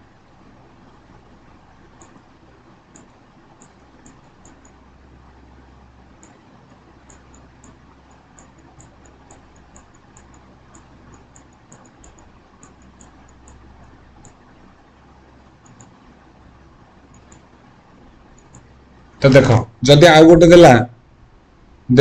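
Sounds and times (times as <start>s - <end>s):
faint steady hiss: 0.0s - 22.0s
computer mouse clicks: 1.6s - 4.9s, 6.0s - 18.8s.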